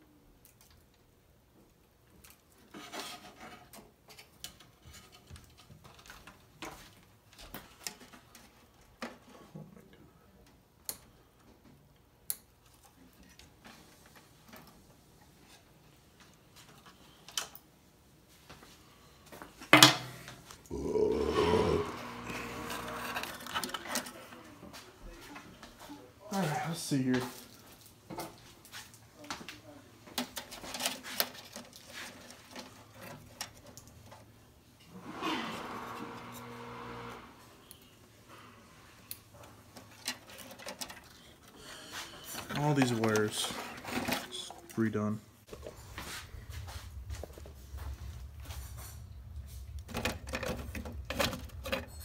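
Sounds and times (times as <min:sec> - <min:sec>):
steady hum: 0:20.6 - 0:23.5
wires and plastic parts clicking: 0:39.0 - 0:41.6.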